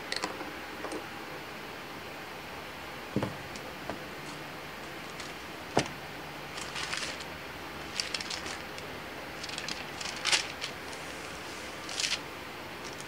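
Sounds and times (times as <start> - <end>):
paper pages turning: 4.3 - 5.9, 6.5 - 12.2, 12.8 - 13.0.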